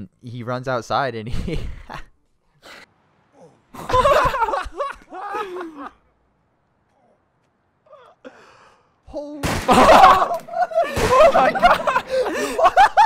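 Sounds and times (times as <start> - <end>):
person laughing and exclaiming: 3.8 - 6.0, 9.7 - 13.0.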